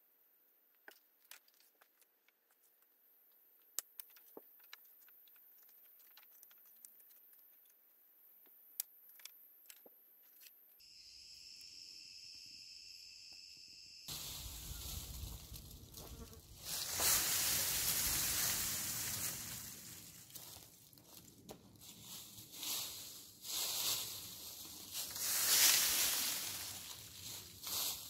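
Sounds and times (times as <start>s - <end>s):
high insect buzz: 10.8s - 20.2s.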